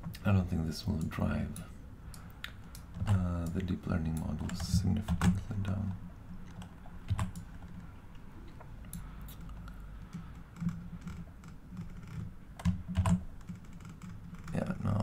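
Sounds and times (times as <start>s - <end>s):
steady low hum: 0.0s - 15.0s
computer keyboard taps: 12.6s - 13.6s.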